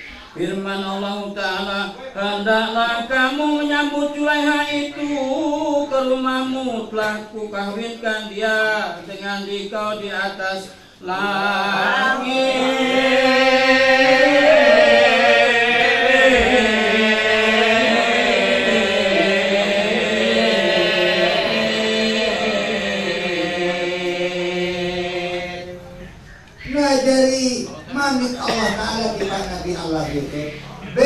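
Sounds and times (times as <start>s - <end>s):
man chanting into a microphone: 0.0s - 11.7s.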